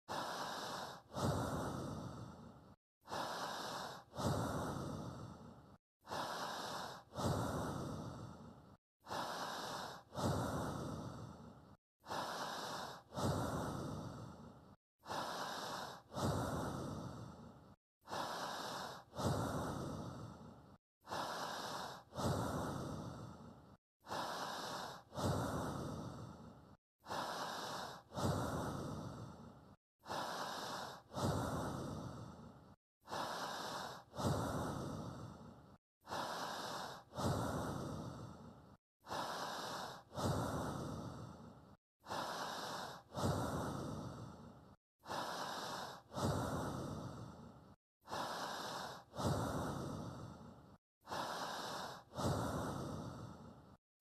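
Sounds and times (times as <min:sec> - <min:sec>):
slow human breathing: 0:00.1 - 0:53.8.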